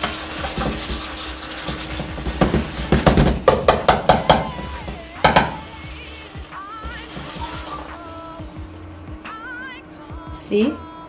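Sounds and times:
utensils scraping a metal pot: 0.0 - 3.4, 4.4 - 8.1.

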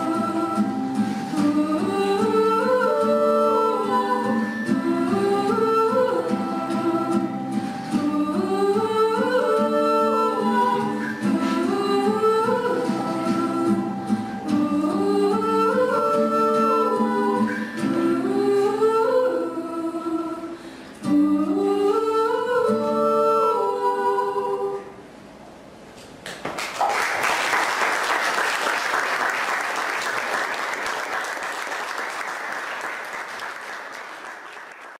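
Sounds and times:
women singing in harmony: 0.0 - 24.9
audience applauding: 26.2 - 35.0.

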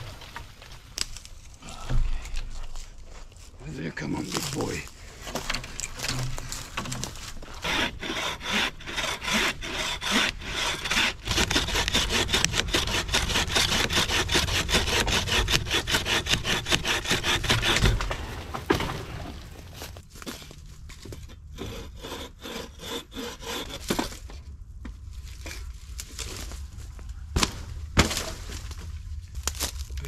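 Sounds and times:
hand saw cutting log: 6.2 - 18.2, 21.2 - 24.3.

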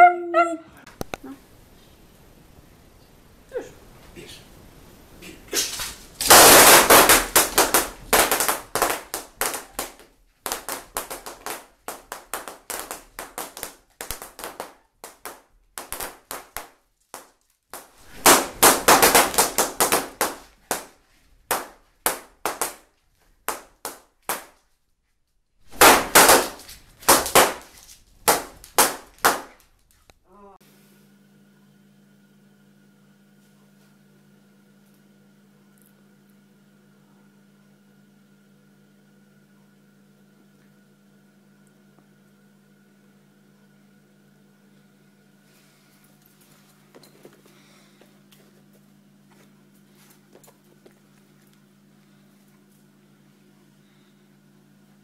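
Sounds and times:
balloons popping: 5.5 - 24.6, 25.7 - 29.9.

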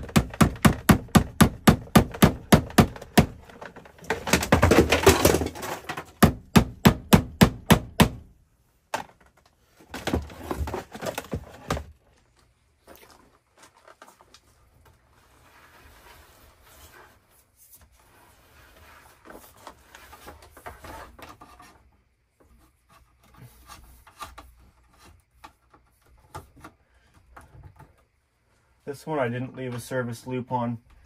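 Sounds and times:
handling noises: 2.0 - 6.3, 8.8 - 16.0
scraping and rustling: 9.2 - 28.2.

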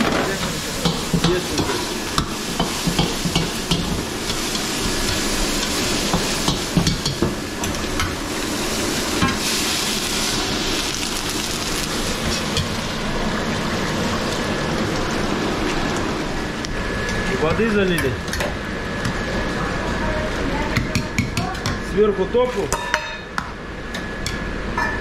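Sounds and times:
food sizzling in a wok: 0.0 - 17.2.

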